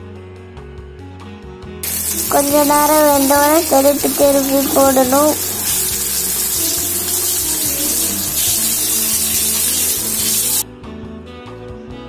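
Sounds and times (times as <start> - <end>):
background music: 0.0 - 12.0
fish sizzling in hot oil: 1.8 - 10.6.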